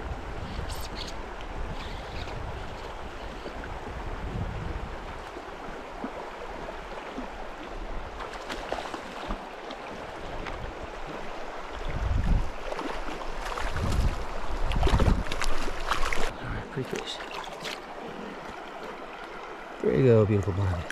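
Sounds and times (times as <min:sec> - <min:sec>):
wind rumble on microphone: 0:00.0 - 0:08.2, 0:09.9 - 0:16.3
creek water rippling over gravel: 0:05.0 - 0:20.9
small water splashes: 0:05.0 - 0:20.9.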